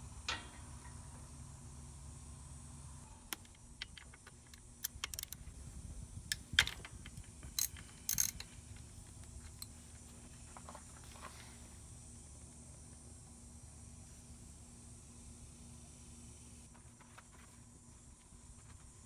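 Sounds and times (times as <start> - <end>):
ratchet clicking: 3.3 - 5.4, 6.3 - 8.5.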